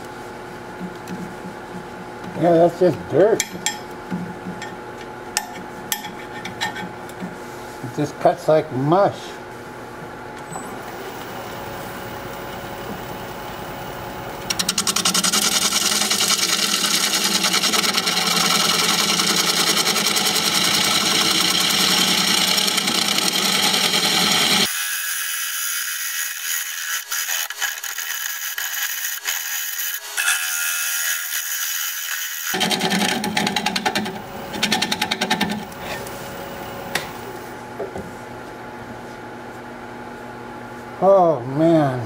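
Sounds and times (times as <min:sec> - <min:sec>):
lathe gouge cutting wood: 0:14.5 - 0:35.8.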